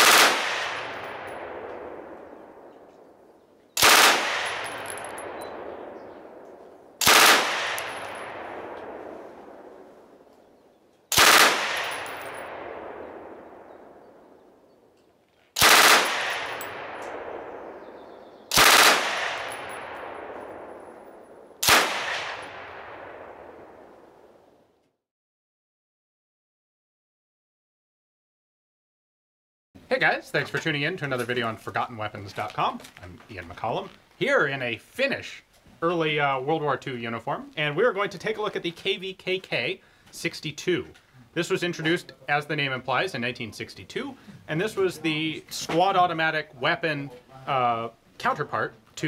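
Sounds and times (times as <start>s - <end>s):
machine gun bursts echoing: 0.0s - 1.4s, 3.8s - 5.4s, 7.0s - 8.7s, 11.1s - 12.8s, 15.6s - 17.4s, 18.5s - 20.1s.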